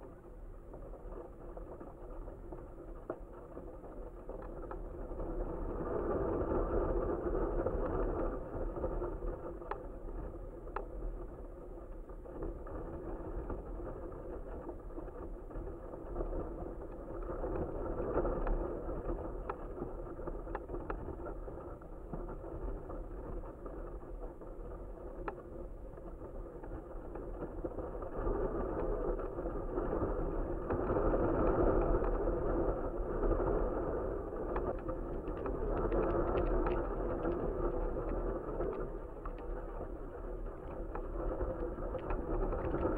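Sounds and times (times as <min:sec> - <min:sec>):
wind rushing over camera: 0:00.0 - 0:42.9
faint ticks: 0:07.6 - 0:11.3, 0:12.4 - 0:42.9.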